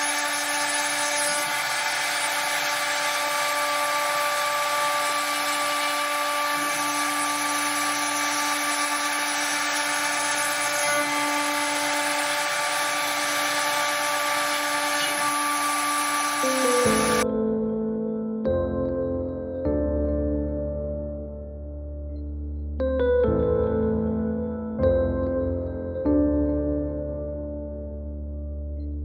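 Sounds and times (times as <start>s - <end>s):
router spindle whine: 0.0s - 17.3s.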